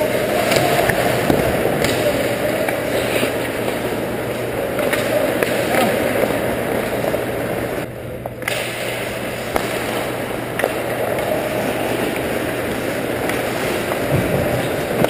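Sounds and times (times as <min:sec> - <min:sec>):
skates scraping ice: 0:00.0 - 0:07.8, 0:08.5 - 0:15.0
steady rink hum: 0:00.0 - 0:15.0
hockey sticks and puck knocking: 0:04.7 - 0:07.2, 0:08.4 - 0:15.0.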